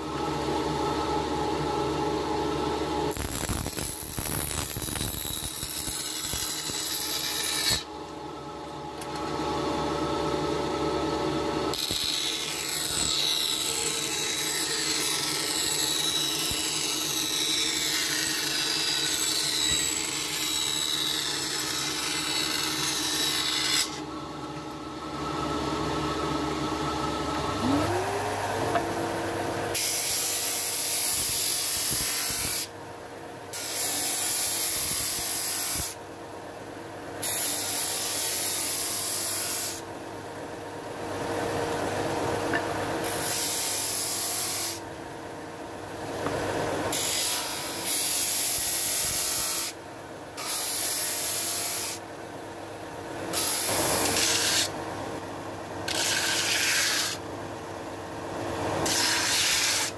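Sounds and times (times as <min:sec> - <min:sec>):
sander motor hum: 0:23.8 - 0:29.8.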